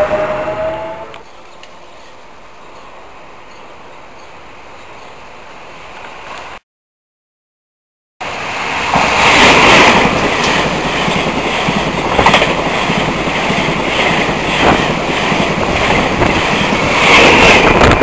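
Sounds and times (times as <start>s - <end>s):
train passing at speed: 0.0s - 6.6s, 8.2s - 18.0s
wheels clacking over rail joints: 8.9s - 18.0s.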